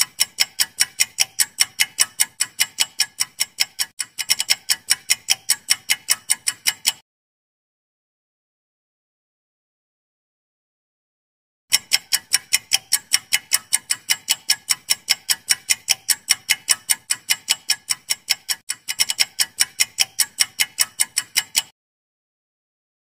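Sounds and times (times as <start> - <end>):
fast clock-like ticks: 0.0 - 7.0, 11.7 - 21.8.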